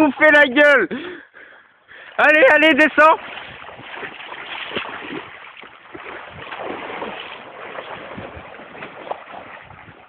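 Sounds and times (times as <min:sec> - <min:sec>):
bike tyres splashing through water: 0:02.2 - 0:10.0.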